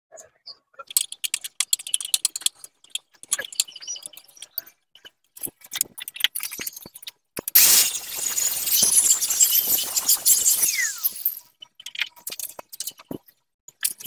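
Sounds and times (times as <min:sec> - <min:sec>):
metallic clicks of tools: 0:00.8 - 0:04.8.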